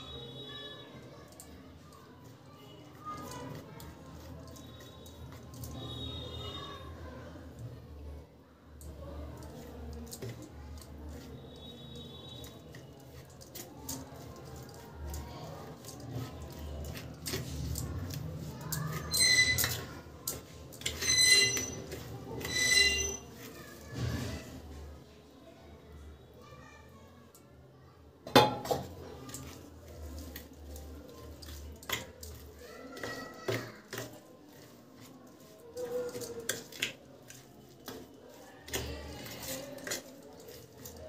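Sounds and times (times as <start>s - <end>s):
metal spoon scraping steel plate: 18.8s - 23.6s.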